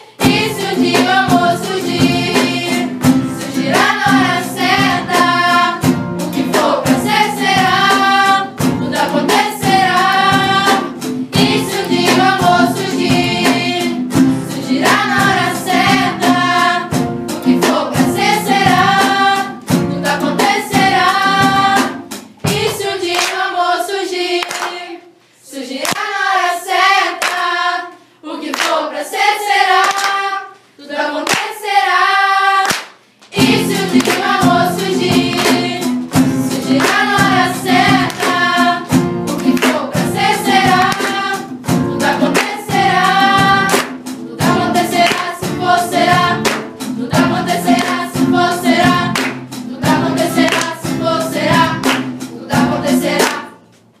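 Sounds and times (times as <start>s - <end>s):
girls singing together: 0.0s - 53.7s
strummed acoustic guitars: 0.2s - 22.6s, 33.4s - 53.8s
hand claps: 21.8s - 23.5s, 24.4s - 24.8s, 25.8s - 26.2s, 27.1s - 27.5s, 28.5s - 28.8s, 29.8s - 30.2s, 31.2s - 31.6s, 32.6s - 40.0s, 40.6s - 42.8s, 43.5s - 44.2s, 44.9s - 45.6s, 46.2s - 47.0s, 47.6s - 48.3s, 48.9s - 49.6s, 50.3s - 51.0s, 51.6s - 53.6s.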